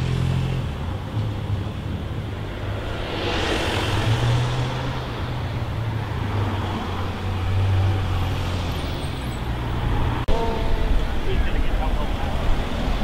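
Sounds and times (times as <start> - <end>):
cars driving past: 0.0 - 10.3
low engine drone and road noise: 0.0 - 13.0.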